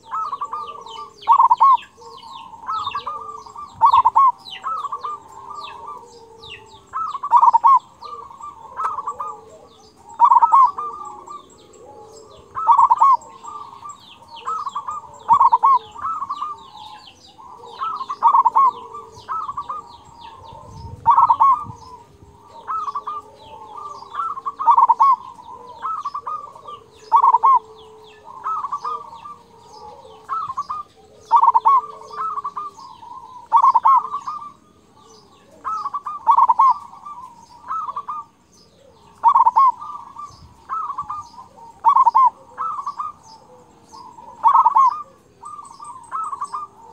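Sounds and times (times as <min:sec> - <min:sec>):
dove cooing: 0:00.0 - 0:46.9
small birds chirping: 0:00.0 - 0:46.9.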